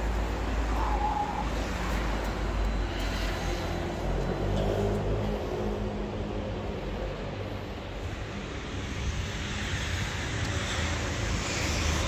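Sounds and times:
city traffic rumble: 0:00.0 - 0:12.0.

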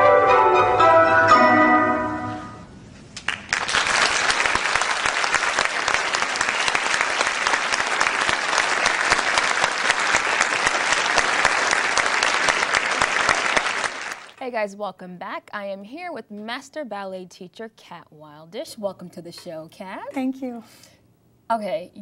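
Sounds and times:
audience applauding: 0:03.2 - 0:14.4.

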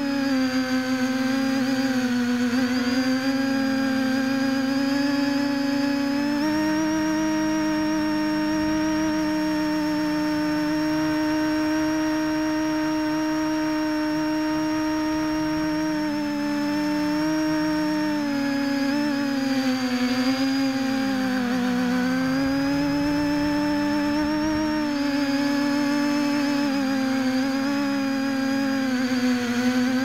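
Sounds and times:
multicopter motors whining: 0:00.0 - 0:30.0
lower wavering tone: 0:19.7 - 0:27.8.

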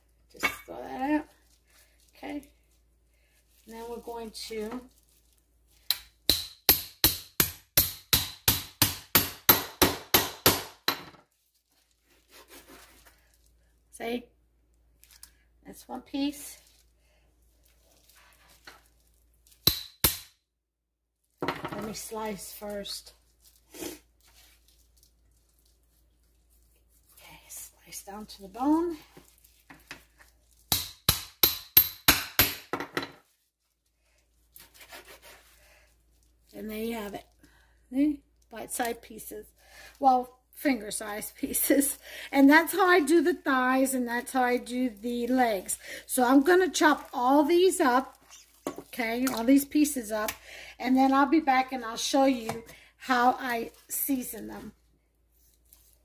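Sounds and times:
metal mallet hammering: 0:05.9 - 0:11.0, 0:30.7 - 0:32.8.

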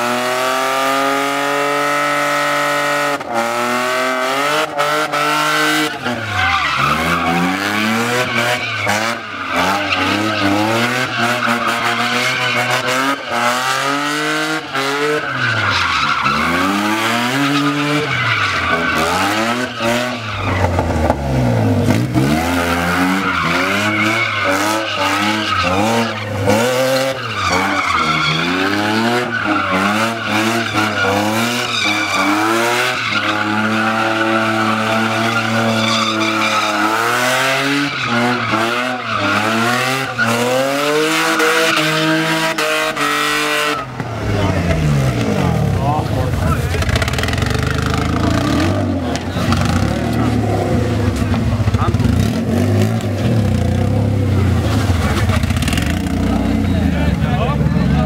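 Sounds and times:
car engine revving hard: 0:00.0 - 0:58.0
tyres squealing: 0:05.4 - 0:21.1, 0:22.0 - 0:45.2.

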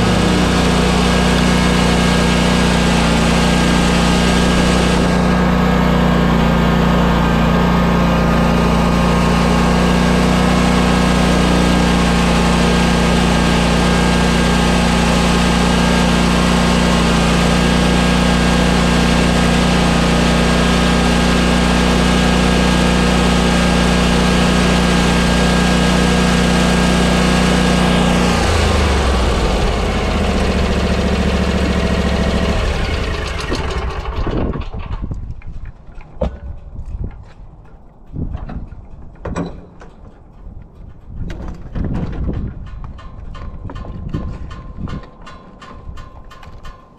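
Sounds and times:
engine shutting off: 0:00.0 - 0:35.2
mower engine running: 0:00.0 - 0:35.2.

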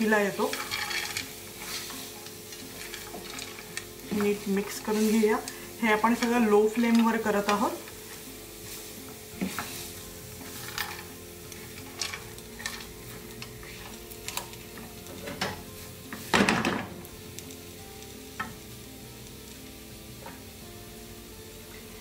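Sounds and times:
faint sizzle: 0:00.0 - 0:22.0
spatula scraping a pan: 0:00.3 - 0:16.3.

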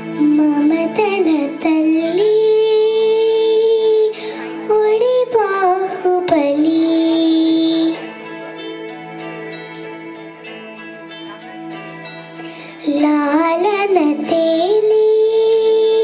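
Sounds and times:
child singing into a microphone: 0:00.0 - 0:08.3, 0:12.5 - 0:16.0
backing track music: 0:00.0 - 0:16.0.

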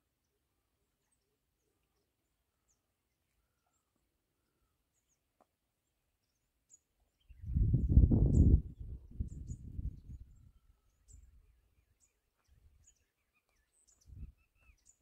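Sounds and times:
faint bird chirps: 0:00.0 - 0:15.0
wind buffeting microphone: 0:07.3 - 0:11.6, 0:14.0 - 0:14.4.

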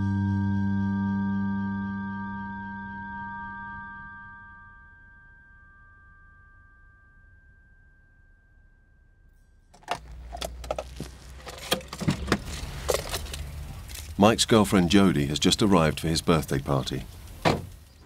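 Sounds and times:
held musical tone: 0:00.0 - 0:08.7
keys jangling at car ignition: 0:09.8 - 0:14.2.

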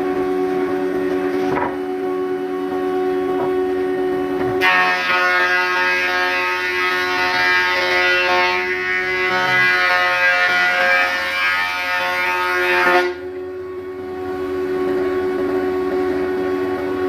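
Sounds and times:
planer humming unloaded: 0:00.0 - 0:11.1
thickness planer cutting wood: 0:03.3 - 0:13.2.

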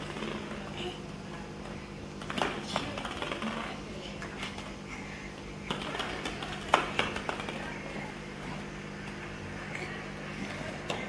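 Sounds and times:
plastic balls tapping on stone floor: 0:02.2 - 0:03.8.

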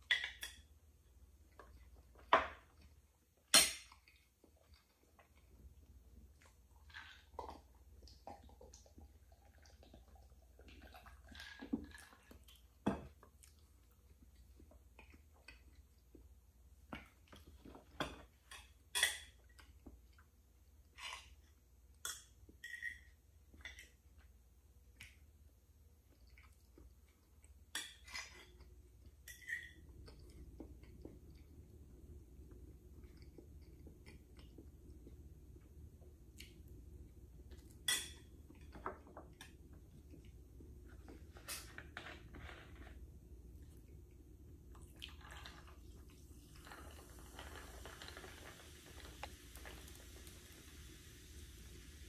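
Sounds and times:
chewing sounds: 0:44.7 - 0:50.0.

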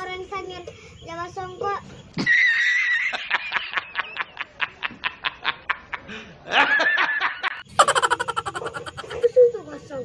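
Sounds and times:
man laughing hard: 0:03.1 - 0:09.2.

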